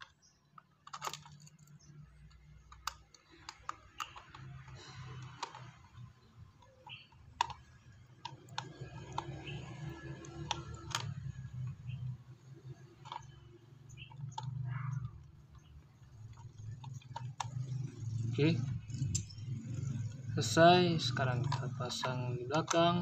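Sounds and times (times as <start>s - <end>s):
screwdriver and plastic clicks: 0.0s - 12.0s, 21.2s - 23.0s.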